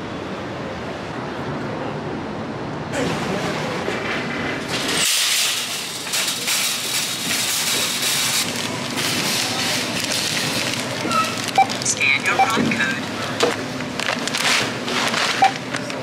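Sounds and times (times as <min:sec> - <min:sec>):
plastic packaging crinkling: 0:07.7 - 0:11.9, 0:14.0 - 0:16.0.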